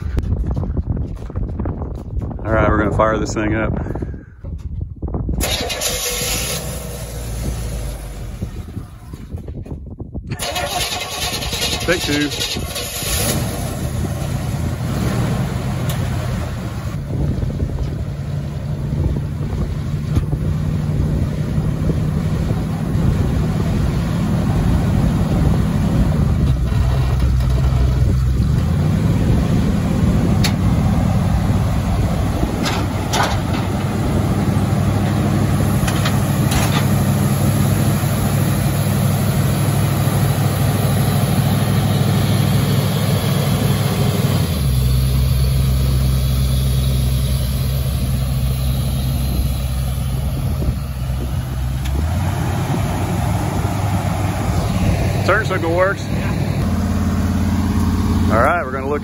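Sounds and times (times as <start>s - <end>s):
car engine idling: 5.4s - 59.0s.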